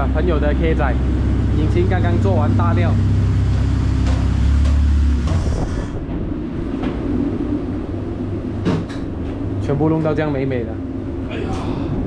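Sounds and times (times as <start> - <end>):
car engine idling: 0.0 - 5.7.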